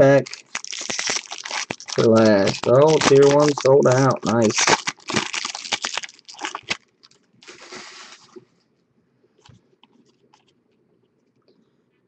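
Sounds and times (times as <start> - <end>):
foil card pack crinkling: 0.0 - 8.3.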